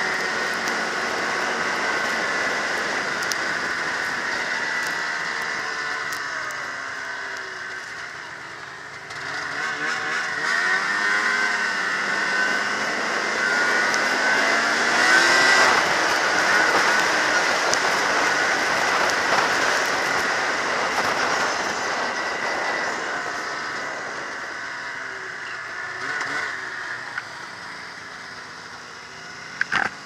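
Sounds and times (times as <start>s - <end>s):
snowmobile engine revving: 0.0s - 30.0s.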